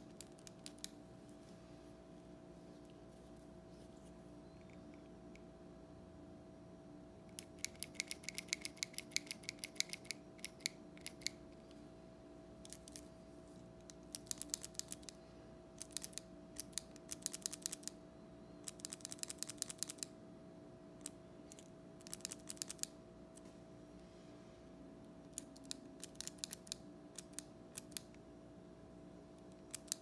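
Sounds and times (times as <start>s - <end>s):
mechanical pencil clicking: 7.3s - 11.4s, 13.9s - 15.2s, 15.8s - 17.9s, 18.6s - 20.1s, 21.0s - 22.9s, 25.3s - 28.2s, 29.5s - 30.0s.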